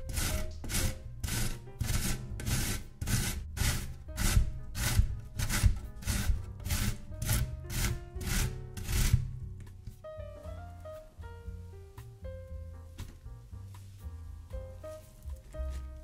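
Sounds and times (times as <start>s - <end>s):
zucchini rasping on a grater: 0.0s - 9.4s
low thuds of grater: 0.0s - 10.0s.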